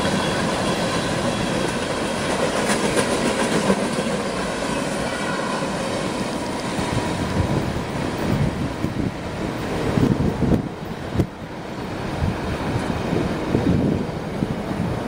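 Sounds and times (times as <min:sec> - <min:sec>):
train wheels clacking: 0:00.0 - 0:10.2
train rumble and rail noise: 0:00.0 - 0:15.0.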